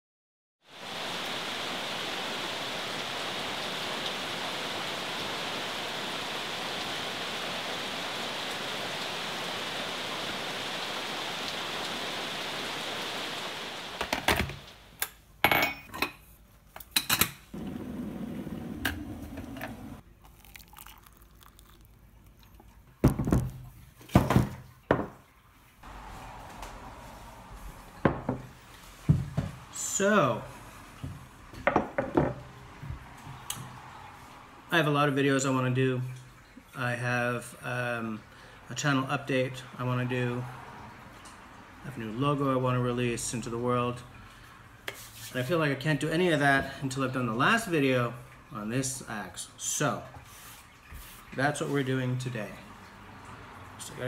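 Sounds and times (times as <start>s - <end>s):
rain on foliage: 0.7s - 15.0s, 25.8s - 31.5s
soft pouring: 20.0s - 24.0s
ceramic cup knocking on table: 28.0s - 28.4s, 31.7s - 32.4s.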